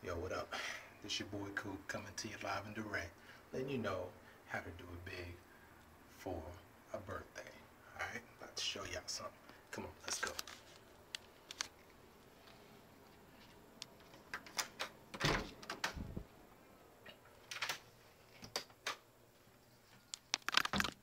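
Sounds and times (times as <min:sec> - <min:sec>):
heavy door thump: 0:15.1 - 0:16.2.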